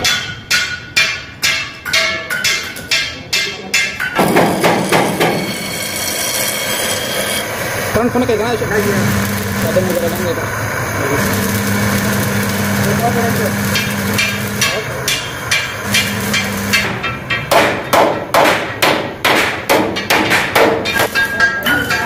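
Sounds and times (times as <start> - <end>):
hammer striking steel: 0.0 - 7.6, 11.2 - 22.0
steady low hum: 7.4 - 19.3.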